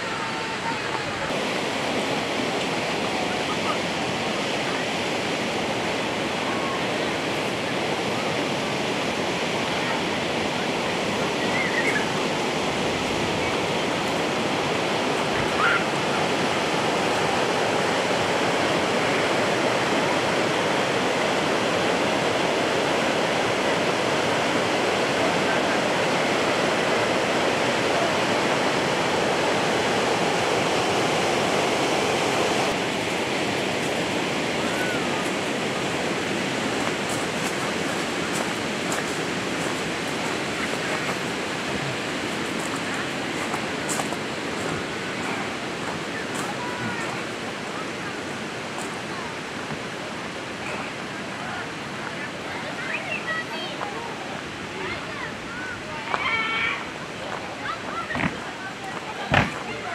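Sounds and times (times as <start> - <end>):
water flowing: 0.0 - 59.9.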